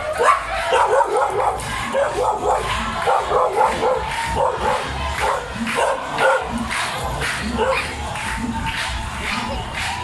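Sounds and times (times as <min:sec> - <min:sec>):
dog barking fast: 0:00.0 - 0:06.5, 0:07.5 - 0:08.0.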